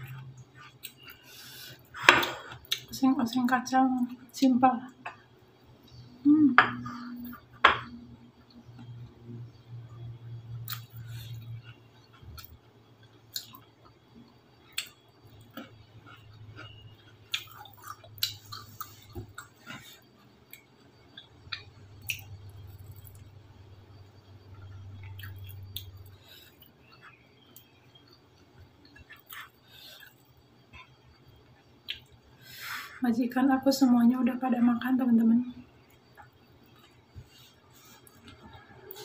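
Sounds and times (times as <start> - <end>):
close chewing and mouth sounds: 0.0 - 3.5, 9.9 - 23.4, 24.4 - 32.4, 35.8 - 39.0
low steady hum: 0.0 - 39.0.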